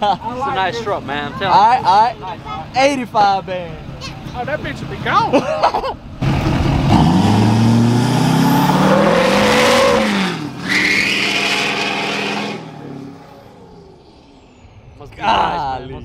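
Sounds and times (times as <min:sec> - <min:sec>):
truck engine revving: 0:06.0 - 0:14.5
tyres squealing: 0:08.8 - 0:13.0.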